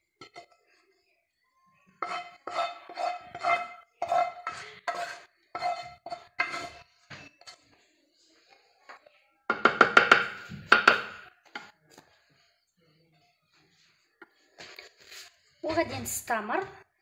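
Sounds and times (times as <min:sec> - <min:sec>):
wooden spoon knocking on a pan: 0:09.5 - 0:11.7.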